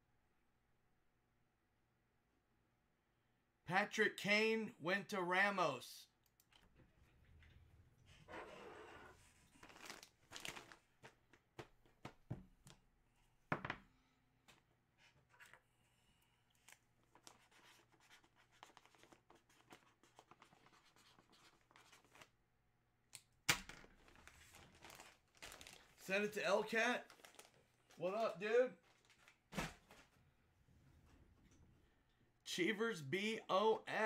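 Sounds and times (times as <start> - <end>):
plastic bags crinkling: 9.5 - 11.2, 24.0 - 30.1.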